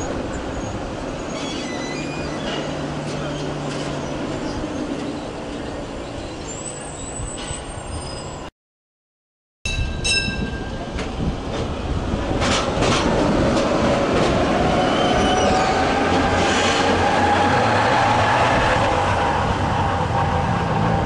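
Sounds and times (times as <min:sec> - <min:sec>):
tram rolling past: 0:00.0 - 0:08.5, 0:09.7 - 0:21.0
tram bell ringing: 0:09.7 - 0:11.3.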